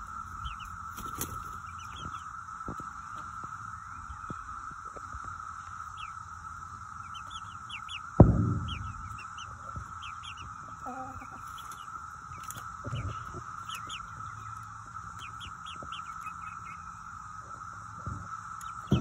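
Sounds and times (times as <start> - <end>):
high-pitched hum: 0.0 - 19.0
young chickens clucking: 0.0 - 19.0
thud: 8.2 - 9.9.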